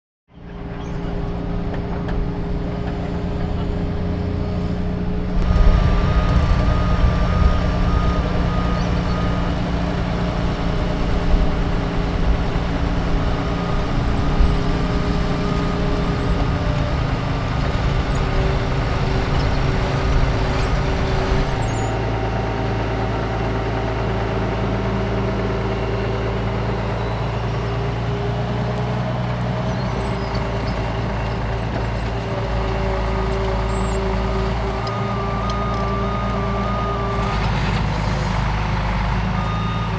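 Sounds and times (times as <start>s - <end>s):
heavy diesel engine under load: 0.3s - 39.9s
reversing alarm beeping: 5.4s - 11.6s, 34.2s - 39.9s.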